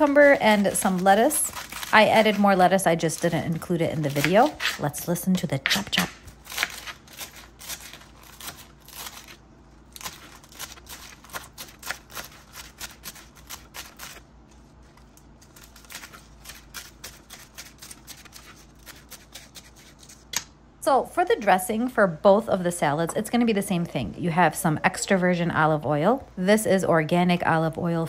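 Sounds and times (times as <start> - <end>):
knife chopping lettuce: 0.0 - 5.0, 5.6 - 9.4, 10.0 - 14.2, 15.4 - 20.4.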